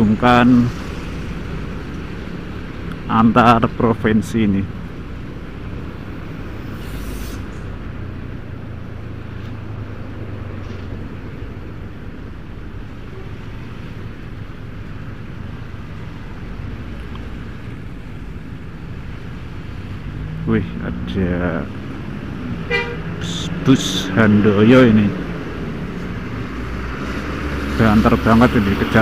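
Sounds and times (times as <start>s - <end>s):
road and wind noise: 0.0s - 29.0s
brief hiss: 6.7s - 7.7s
motorcycle engine drone: 7.5s - 29.0s.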